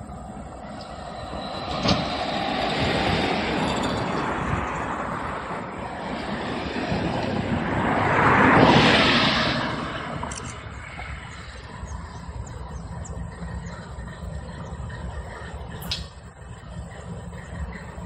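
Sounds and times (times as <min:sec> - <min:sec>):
freight train rumble: 0:00.0 - 0:18.0
sharp click: 0:15.8 - 0:16.2.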